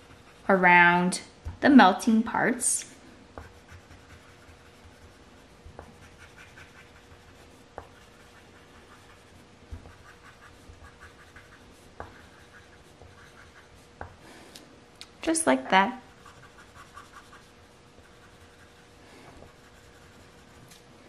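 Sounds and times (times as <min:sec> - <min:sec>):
pencil scratching on paper: 0:00.0 - 0:00.6, 0:03.4 - 0:14.0, 0:16.1 - 0:20.7.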